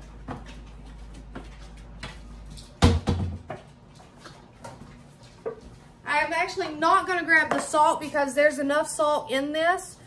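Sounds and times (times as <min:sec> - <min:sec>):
light taps and footsteps: 0:00.0 - 0:05.9.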